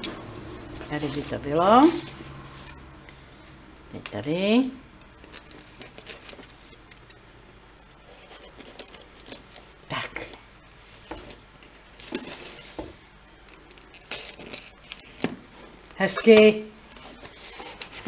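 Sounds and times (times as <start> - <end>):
cardboard rustling: 0.7 - 2.8, 5.2 - 6.8, 8.0 - 9.8, 11.0 - 18.0.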